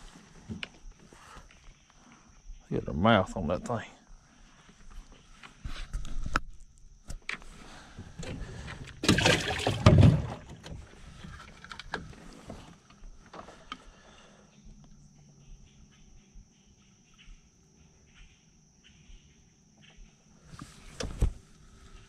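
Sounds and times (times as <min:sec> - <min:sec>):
thump and rustle in a boat: 0:00.0 - 0:01.6, 0:07.1 - 0:13.9, 0:19.9 - 0:22.0.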